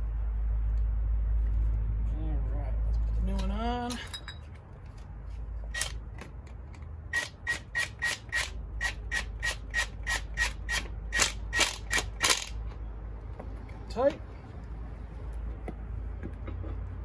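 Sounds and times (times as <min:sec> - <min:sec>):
power tool sharp metallic clicks: 0:07.1 - 0:12.6.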